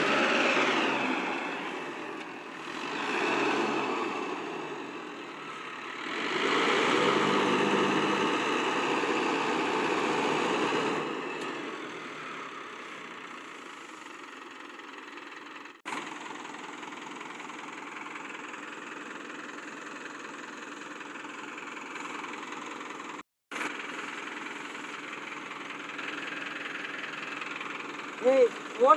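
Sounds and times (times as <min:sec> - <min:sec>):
tractor diesel engine running: 0:00.0 - 0:28.9.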